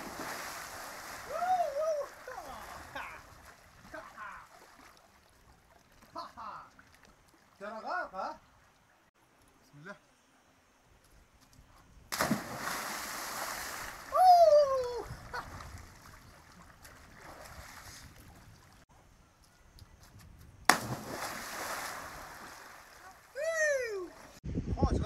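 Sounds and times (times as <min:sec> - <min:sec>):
splashes of jumping into water: 0:00.0 - 0:07.5, 0:12.1 - 0:18.4, 0:20.7 - 0:24.4
person crying out: 0:14.1 - 0:15.1, 0:23.4 - 0:24.1.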